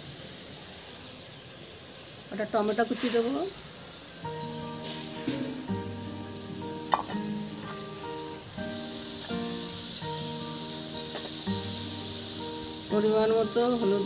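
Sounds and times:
masala sizzling and bubbling in a pan: 0:00.0 - 0:14.0
soft background music: 0:04.3 - 0:14.0
spatula knocking on pan: 0:05.2 - 0:05.8, 0:06.9 - 0:07.2.

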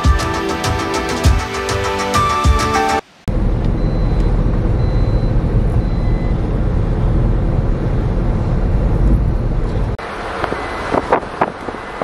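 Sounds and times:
road noise: 0:02.8 - 0:12.0
wind: 0:03.0 - 0:12.0
vehicle engine: 0:03.3 - 0:12.0.

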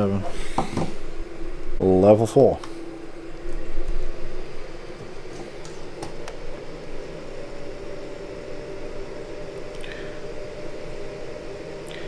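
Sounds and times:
heater blower fan humming: 0:00.0 - 0:12.0.

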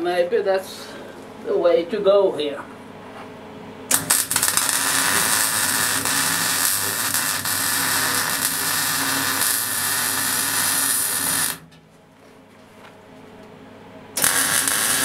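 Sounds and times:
welding arc hissing: 0:03.9 - 0:11.7, 0:14.2 - 0:15.0.

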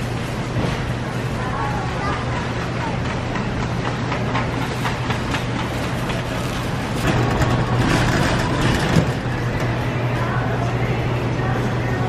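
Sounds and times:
shopping cart rattling on tiles: 0:01.4 - 0:10.7.

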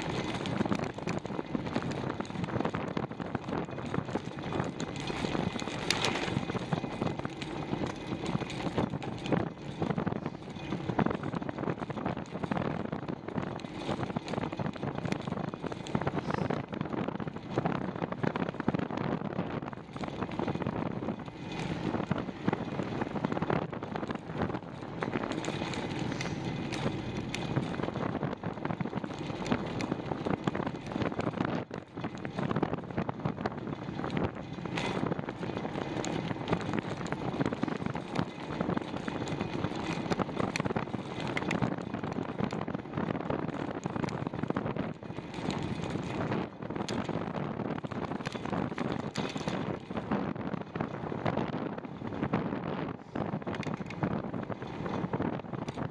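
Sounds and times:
wind rushing over microphone: 0:00.0 - 0:55.9.

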